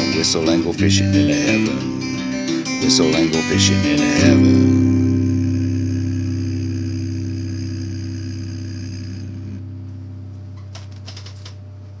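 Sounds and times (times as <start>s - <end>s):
acoustic guitar chord ringing: 0.0s - 10.7s.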